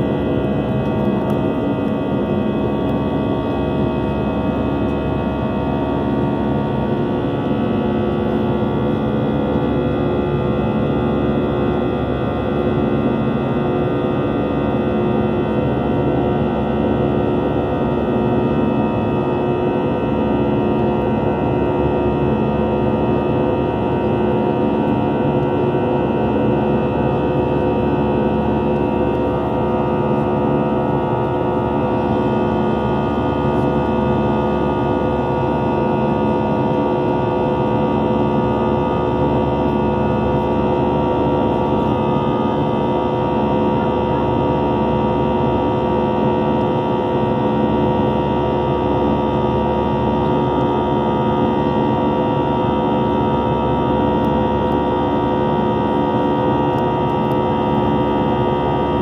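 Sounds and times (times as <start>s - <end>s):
jet engines droning in cabin: 0.0s - 59.0s.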